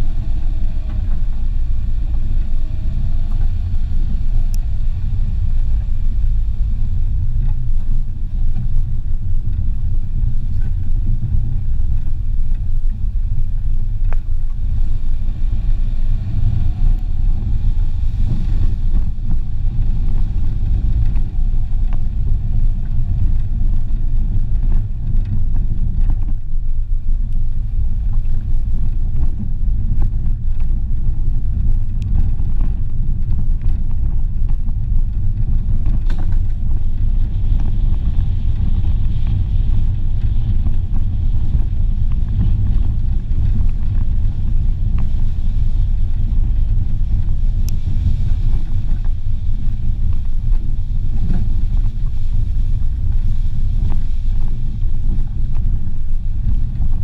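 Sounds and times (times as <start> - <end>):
car rumbling over rough ground: 0.0 - 57.0.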